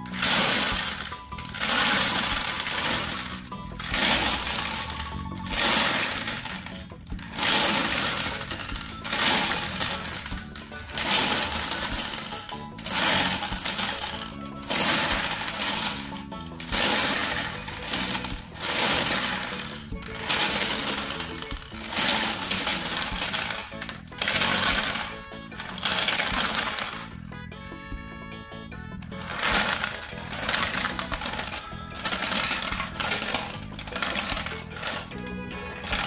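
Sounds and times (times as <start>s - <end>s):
marbles rattling in plastic drum: 0.0s - 27.2s, 29.0s - 36.0s.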